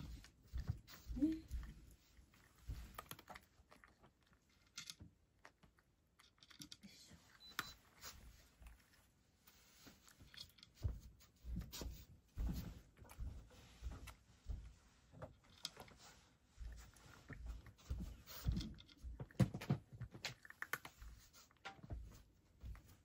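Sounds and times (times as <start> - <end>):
cat crunching dry food: 2.2 - 6.8, 18.7 - 21.6.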